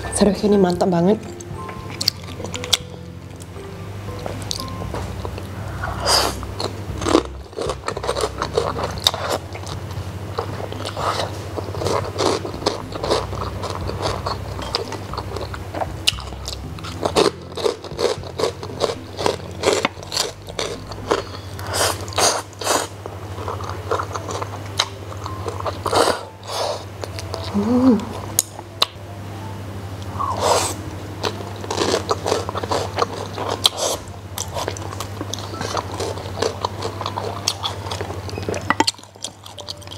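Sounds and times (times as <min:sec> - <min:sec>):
low steady hum: 0:00.0 - 0:39.9
crunchy chewing: 0:04.2 - 0:28.9, 0:30.1 - 0:39.9
noodles slurping: 0:10.4 - 0:24.9, 0:30.2 - 0:39.9.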